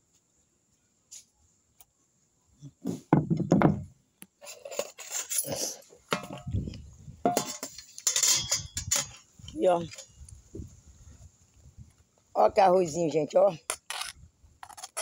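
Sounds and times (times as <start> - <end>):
plate set down: 6.1 - 6.5, 7.2 - 9.2
bowl and spoon clinking: 7.3 - 9.2.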